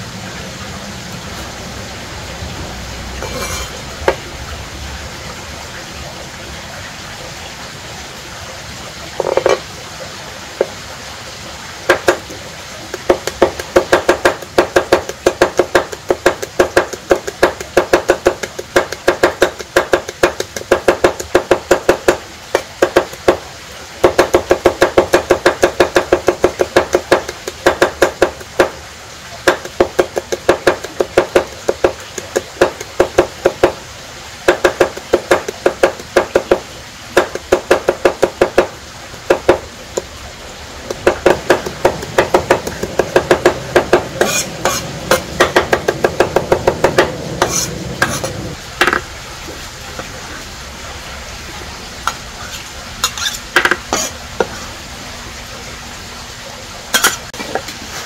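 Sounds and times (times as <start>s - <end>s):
knife chopping on cutting board: 12.9s - 23.4s, 24.0s - 28.7s, 29.5s - 33.8s, 34.5s - 36.6s, 37.2s - 38.7s, 40.9s - 49.0s.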